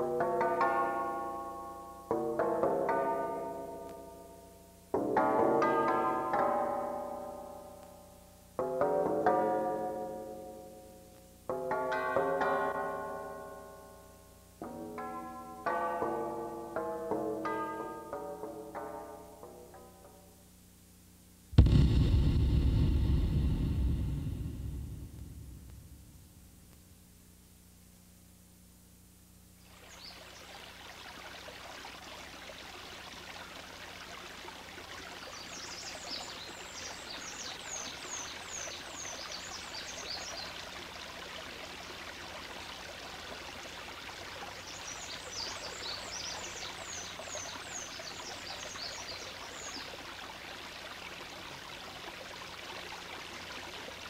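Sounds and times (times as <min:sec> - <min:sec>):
rushing water: 0:29.7 - 0:54.0.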